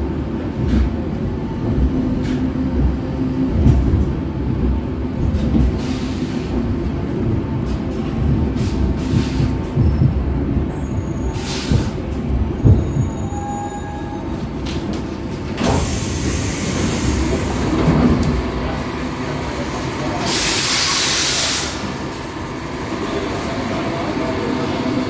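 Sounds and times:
train wheels rumbling: 0:00.0 - 0:25.0
hiss: 0:20.2 - 0:21.8.

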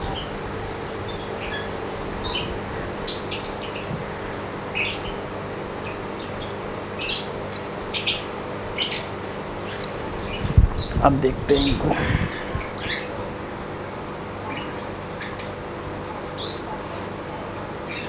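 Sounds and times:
steady low hum: 0:00.0 - 0:18.0
high bird chirps: 0:12.4 - 0:13.2, 0:14.4 - 0:15.8.

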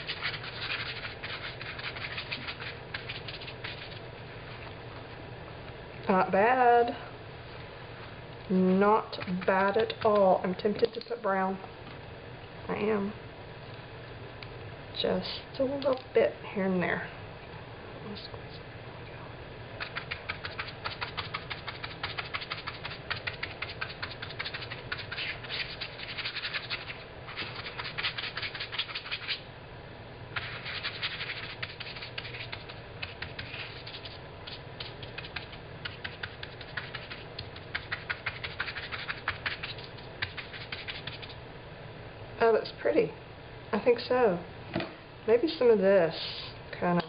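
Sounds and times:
paintbrush scrubbing on fabric: 0:00.0 - 0:04.7, 0:19.8 - 0:29.4, 0:30.4 - 0:41.4.

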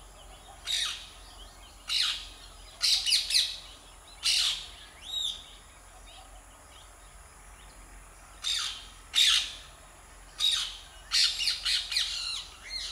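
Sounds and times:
parakeet screeching calls: 0:08.4 - 0:09.5.

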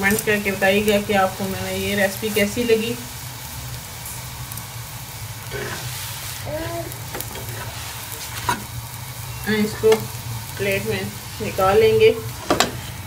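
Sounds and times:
flatbread sizzling in ghee: 0:00.0 - 0:13.0
spatula scraping griddle: 0:05.4 - 0:13.0.

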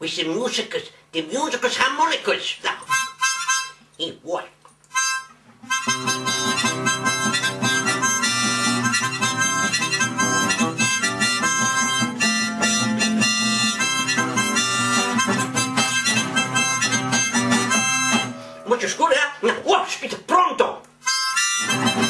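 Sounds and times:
harmonica playing: 0:02.8 - 0:03.9, 0:04.9 - 0:18.8, 0:21.0 - 0:22.0
acoustic guitar strumming: 0:05.0 - 0:18.8, 0:21.0 - 0:22.0.

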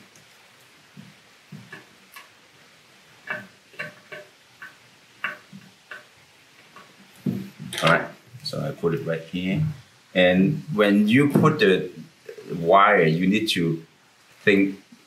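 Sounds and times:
small metal clicks and taps: 0:03.2 - 0:08.0.

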